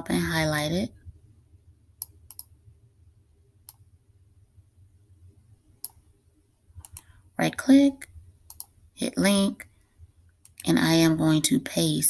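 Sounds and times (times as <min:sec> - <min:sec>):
computer mouse clicking: 0:02.0 - 0:02.5, 0:03.6 - 0:03.8, 0:05.8 - 0:06.0, 0:06.8 - 0:07.1, 0:08.5 - 0:08.8, 0:10.4 - 0:10.7.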